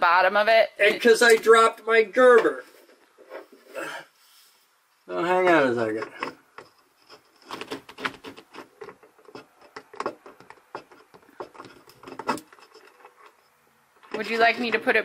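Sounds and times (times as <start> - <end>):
hard objects clattering: 5.8 - 14.9.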